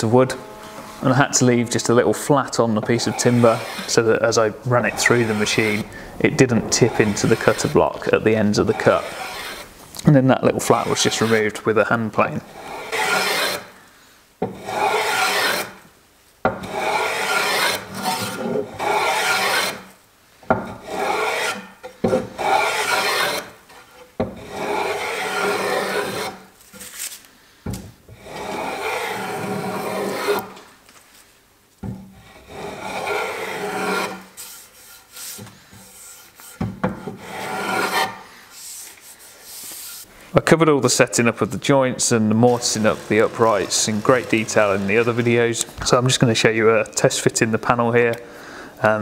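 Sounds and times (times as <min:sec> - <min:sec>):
hand plane shaving wood: 0:00.2 - 0:09.7, 0:10.4 - 0:13.7, 0:14.6 - 0:15.8, 0:16.6 - 0:19.8, 0:20.8 - 0:26.4, 0:28.2 - 0:30.6, 0:32.3 - 0:40.1, 0:42.0 - 0:45.7.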